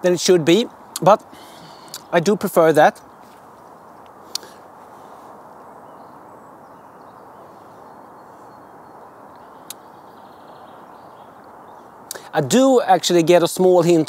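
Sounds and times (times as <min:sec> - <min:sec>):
outdoor background hiss: 0:00.0 - 0:14.0
short sharp clicks: 0:04.3 - 0:04.5.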